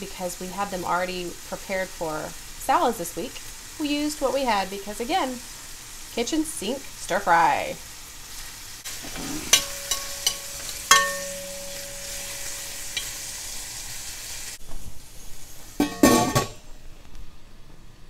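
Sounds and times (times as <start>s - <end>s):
carrots sizzling in oil: 0.0s - 16.5s
metal spoon scraping wok: 8.9s - 13.6s
lid clattering onto wok: 9.2s - 13.2s, 15.8s - 16.6s
metal clinks ringing: 9.6s - 12.2s.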